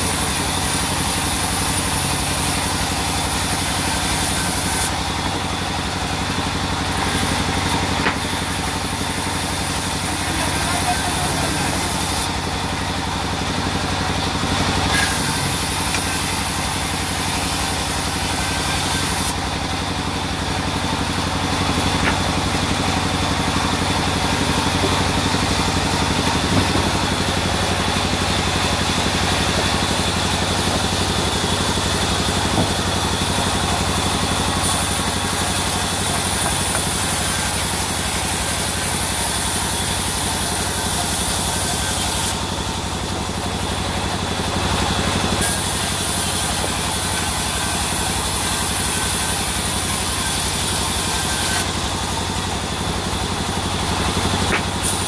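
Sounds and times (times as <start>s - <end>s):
band saw ripping wood: 14.5s - 19.8s, 20.7s - 42.4s, 44.4s - 51.8s, 53.4s - 55.0s.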